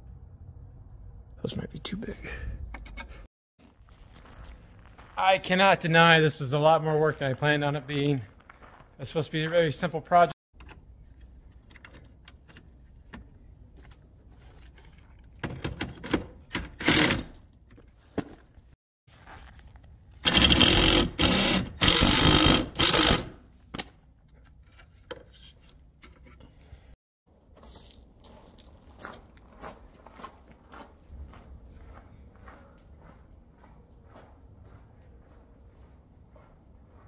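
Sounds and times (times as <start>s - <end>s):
footsteps on gravel: 3.6s - 6.0s, 6.6s - 9.8s, 19.1s - 20.2s, 27.4s - 37.0s.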